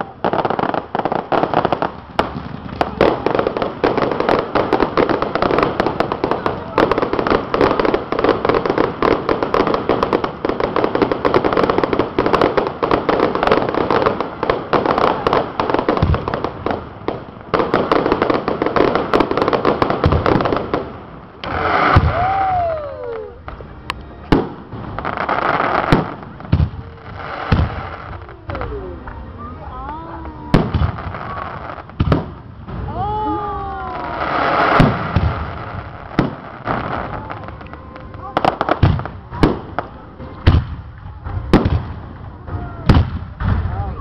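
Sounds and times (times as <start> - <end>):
fireworks crackling and popping: 0.0 - 44.0.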